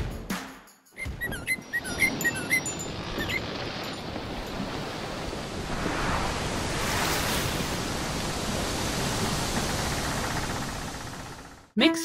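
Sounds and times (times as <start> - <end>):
rushing surf-like whoosh: 3.4 - 11.3.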